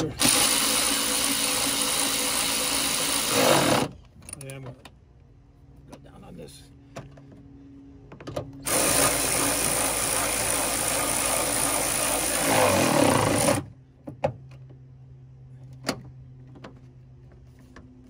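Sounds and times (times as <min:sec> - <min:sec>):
power tool driving bolt: 0:00.2 - 0:04.0, 0:08.6 - 0:13.7.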